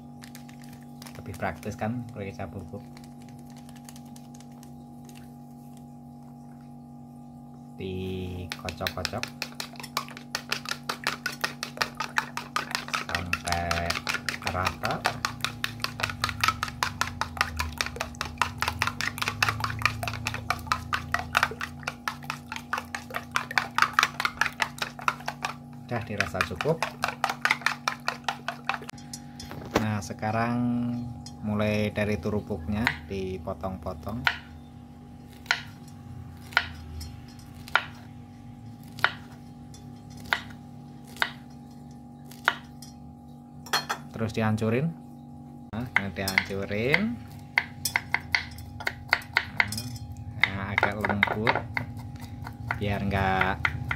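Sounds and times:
steady low hum: 0.0 - 53.9
knife chopping on wooden board: 8.4 - 28.9, 35.3 - 35.8, 37.6 - 38.0, 38.8 - 39.4, 40.2 - 41.5, 45.9 - 49.8
spoon tapping against bowl: 47.6 - 52.8.

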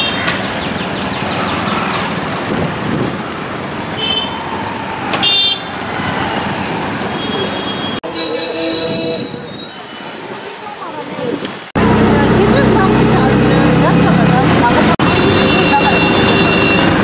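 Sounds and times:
traffic engines and road noise: 0.0 - 17.0.

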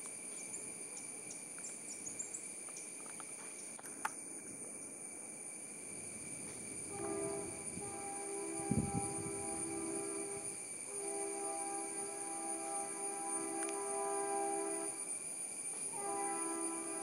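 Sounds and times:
high-pitched insect drone: 0.0 - 17.0
train horn: 6.8 - 15.1, 15.7 - 17.0.

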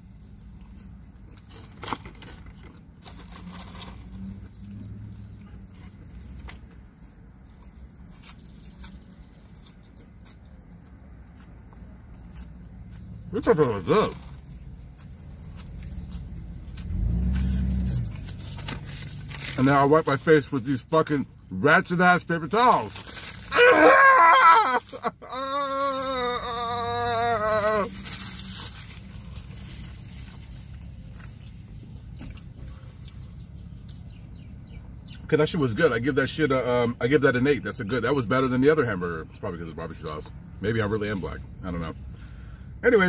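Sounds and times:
close-up chewing: 4.5 - 13.3.

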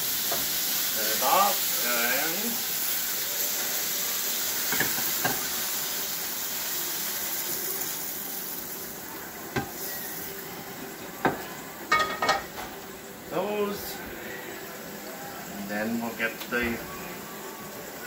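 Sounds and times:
shrimp sizzling in a frying pan: 0.0 - 18.0
pan knocking: 11.2 - 12.7
metal pan clattering on grate: 11.9 - 12.7.

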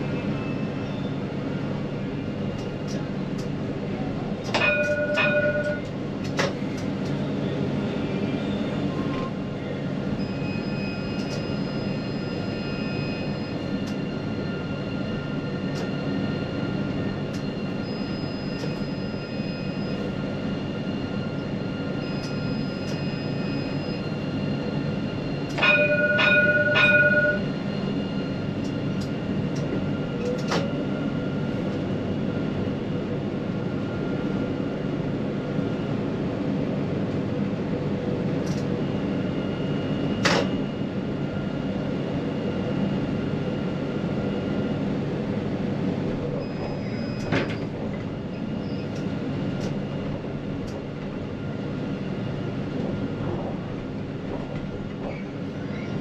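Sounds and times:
tram rumbling: 0.0 - 56.0
ringing warning signal: 4.5 - 5.9, 10.2 - 30.8.

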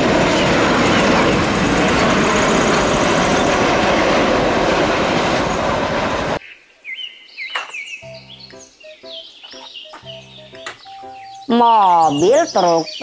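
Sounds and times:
jet engines roaring: 0.0 - 6.4.

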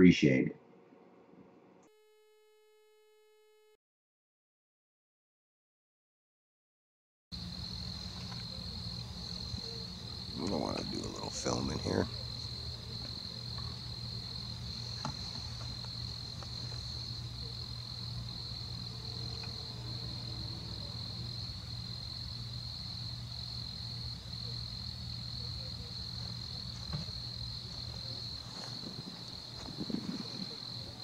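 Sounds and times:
crickets trilling: 7.4 - 31.0
low steady hum: 7.4 - 31.0.

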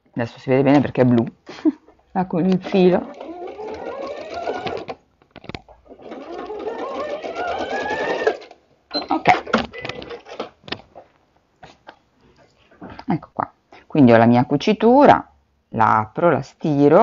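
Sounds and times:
sewing machine stitching: 2.4 - 10.8
sharp clicks and knocks: 3.7 - 6.4.

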